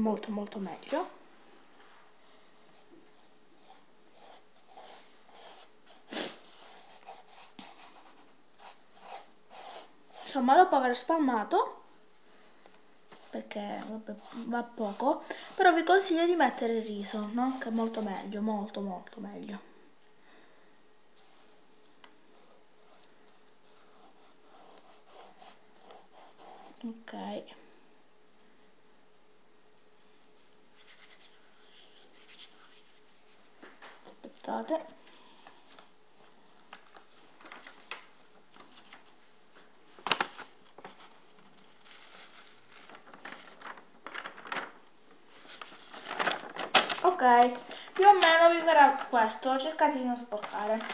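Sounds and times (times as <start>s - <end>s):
hands rubbing on paper: 13.1s - 18.4s, 28.6s - 33.8s
paper rustling: 13.1s - 18.4s, 35.5s - 50.9s.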